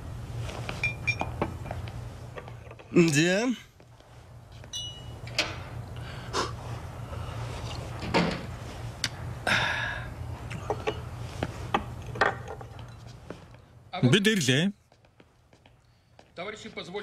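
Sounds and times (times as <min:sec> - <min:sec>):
steady low hum: 0:00.0 - 0:16.8
sharp breaths and sniffs: 0:06.0 - 0:07.7.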